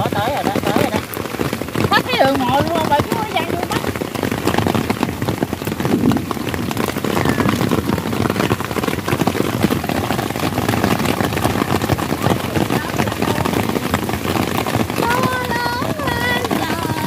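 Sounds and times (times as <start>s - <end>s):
heavy rain: 0.0s - 17.0s.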